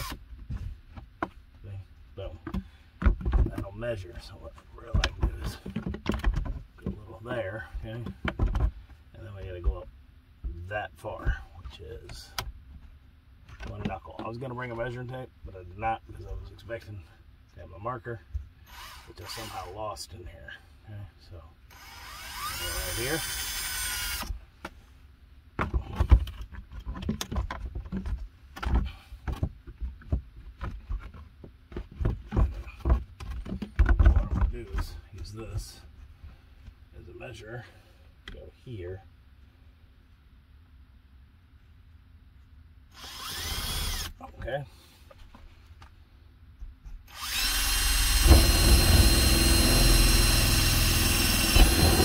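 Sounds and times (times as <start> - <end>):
power drill whine: 0.0 - 0.2, 18.7 - 19.7, 21.7 - 24.3, 42.9 - 44.1, 47.1 - 52.0
knocks and clicks against wood: 2.4 - 3.7, 4.9 - 7.0, 8.0 - 8.8, 25.6 - 34.8, 46.6 - 47.1.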